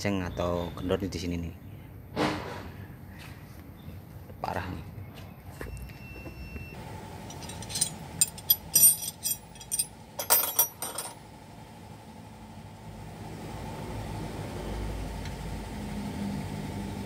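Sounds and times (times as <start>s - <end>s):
steady low hum: 6.3s - 13.4s
metal tools clinking: 7.3s - 11.2s.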